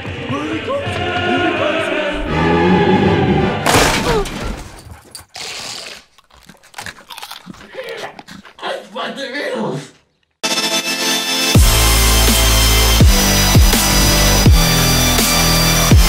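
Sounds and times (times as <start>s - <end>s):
dramatic music with choir: 0.0s - 3.7s.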